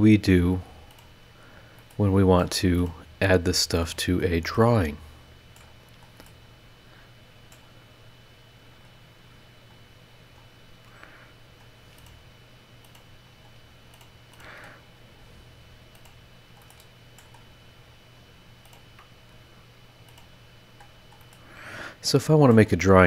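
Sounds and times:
steady low hum: 0.0 - 23.0
computer mouse clicks: 0.9 - 1.1, 5.6 - 6.4, 11.6 - 12.2, 12.8 - 14.4, 15.9 - 17.5, 18.6 - 19.1, 20.1 - 21.4.

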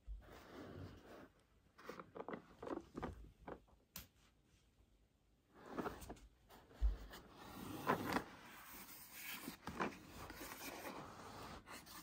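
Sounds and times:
plastic scraping against cloth: 0.4 - 3.6.

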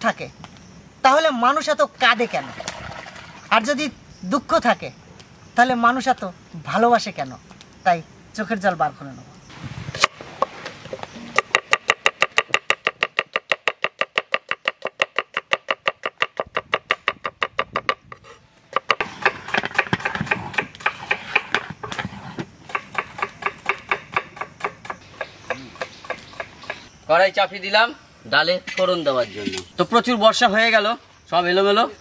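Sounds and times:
knife chopping on wooden board: 18.7 - 26.8.

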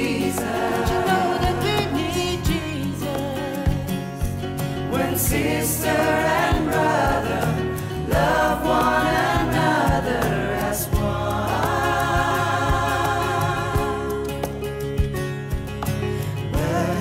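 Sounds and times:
worship song singing: 0.0 - 14.6, 16.2 - 17.0
drum hits: 9.3 - 15.9.

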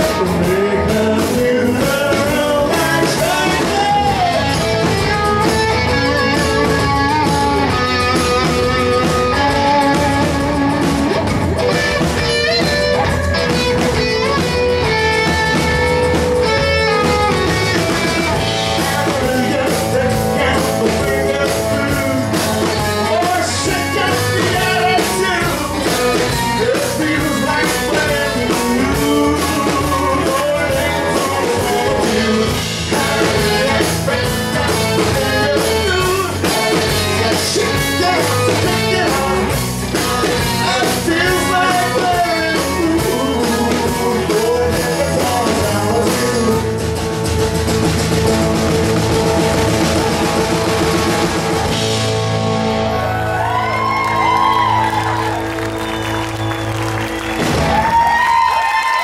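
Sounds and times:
man singing: 0.0 - 10.6, 16.1 - 47.2
electric guitar: 0.0 - 59.0.

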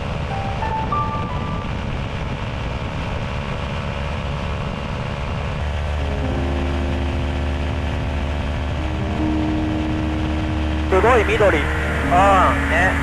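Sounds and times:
light aircraft engine droning: 0.0 - 13.0.

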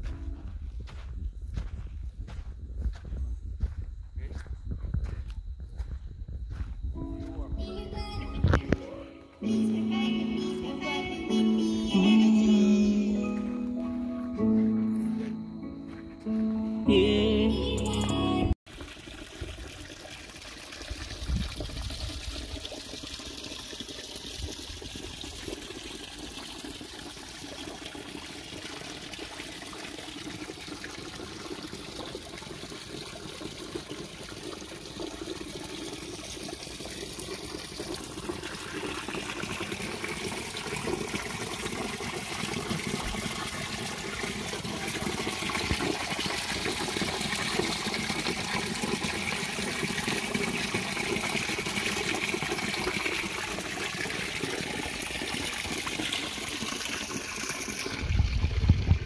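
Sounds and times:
waterfall trickling and splashing: 18.7 - 59.0.

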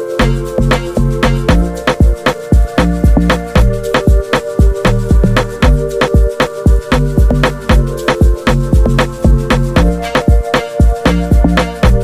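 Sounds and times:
music with quick beat: 0.0 - 12.0
deep bass notes: 0.2 - 1.8, 2.8 - 3.9, 4.9 - 5.9, 6.9 - 10.2, 11.1 - 12.0.

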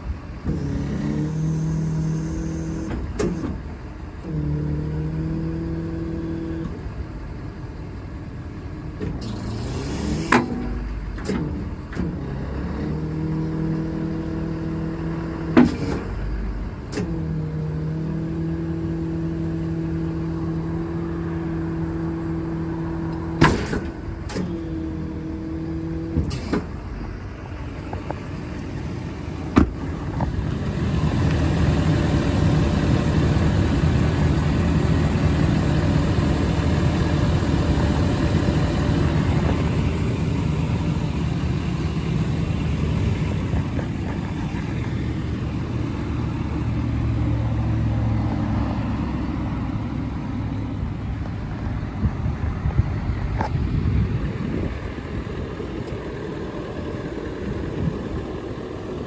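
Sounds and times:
hydraulics humming: 0.0 - 59.0
control clicks and clunks: 2.4 - 4.4, 9.0 - 13.0, 15.5 - 17.3, 23.1 - 24.7.

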